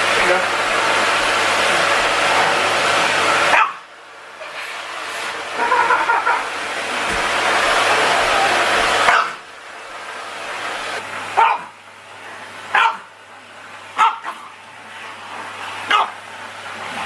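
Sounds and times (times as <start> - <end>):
small dog barking: 3.5 - 3.8, 9.0 - 9.4, 11.4 - 11.8, 12.7 - 13.1, 14.0 - 14.5, 15.9 - 16.2.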